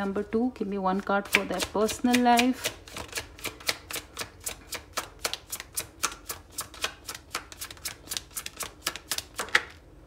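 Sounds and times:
cards being shuffled: 2.1s - 9.8s.

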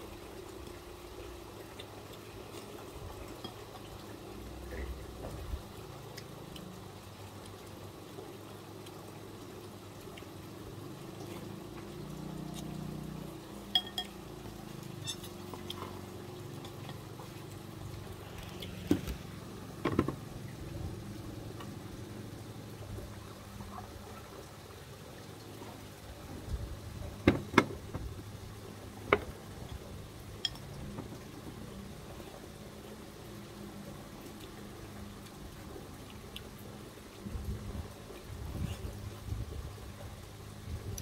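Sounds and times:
steady watery hiss: 0.0s - 41.0s
metal spoon clinking ceramic bowl: 13.7s - 14.2s.

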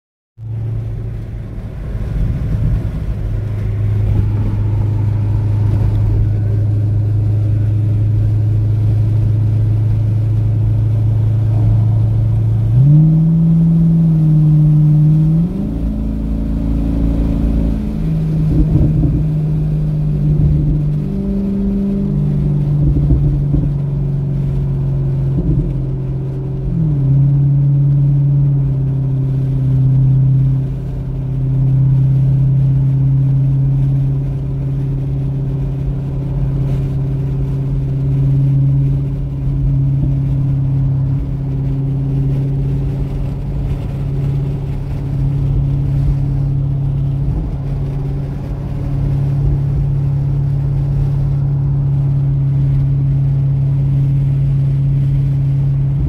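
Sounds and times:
car engine droning: 0.4s - 56.0s
road rumble: 0.4s - 56.0s.

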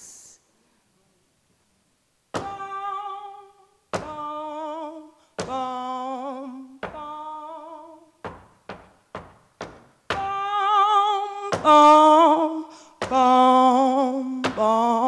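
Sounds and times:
person singing with vibrato: 2.3s - 8.8s, 9.6s - 15.0s.

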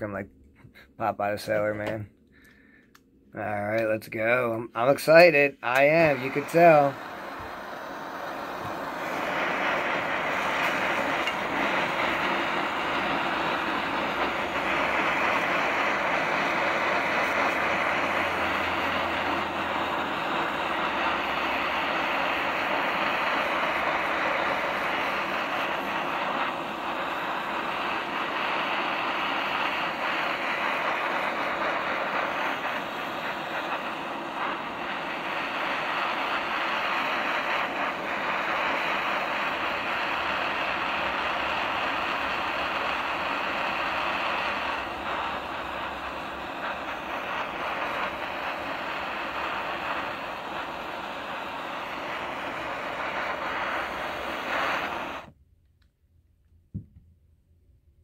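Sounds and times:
butane torch hissing: 0.0s - 55.3s.

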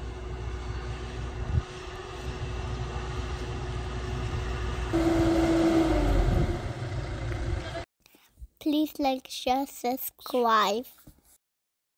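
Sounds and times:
tractor engine droning: 0.0s - 7.9s.

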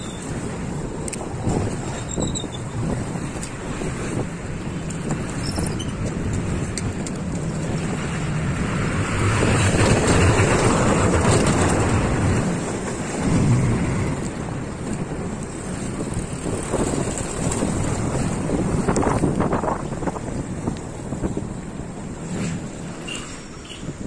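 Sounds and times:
street traffic: 0.0s - 24.0s
wind rushing over microphone: 0.0s - 24.0s
vehicle passing close by: 7.6s - 14.7s.

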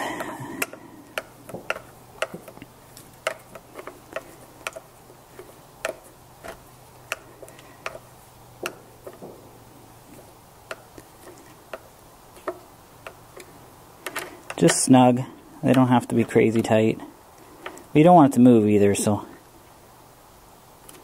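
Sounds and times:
screwdriver clicking and ticking: 0.0s - 9.2s, 10.7s - 14.8s.

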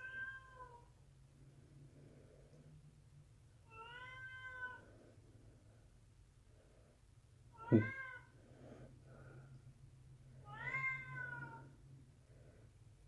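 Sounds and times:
cat meowing: 0.0s - 0.9s, 3.7s - 4.8s, 7.5s - 8.3s, 10.4s - 11.7s.

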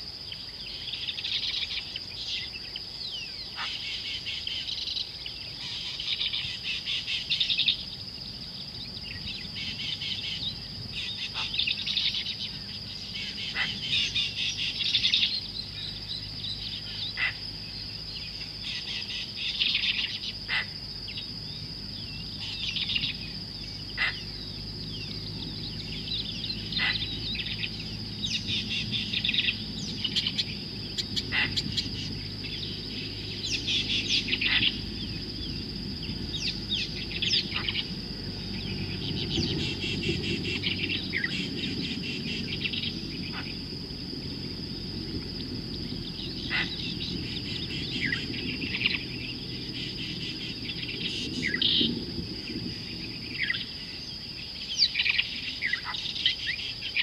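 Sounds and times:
high insect drone: 0.0s - 57.0s
small birds chirping: 0.0s - 57.0s
low hum: 21.0s - 54.2s.

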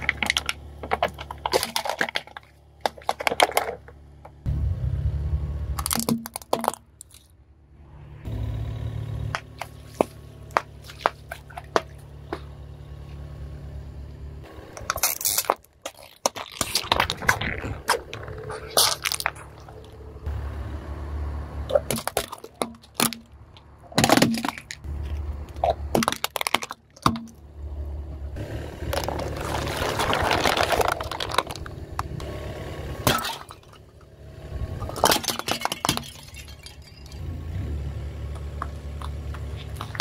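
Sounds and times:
plastic cups cracking and popping: 0.0s - 3.9s, 5.8s - 7.3s, 14.7s - 20.0s, 21.7s - 27.4s, 28.8s - 32.2s, 34.8s - 37.1s, 38.4s - 40.0s
car engine rumble: 0.0s - 40.0s.

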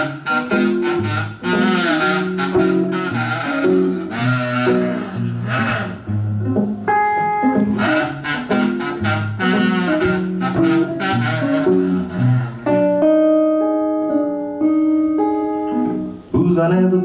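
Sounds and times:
harmonica playing: 0.0s - 16.1s
acoustic guitar strumming: 0.0s - 17.0s.

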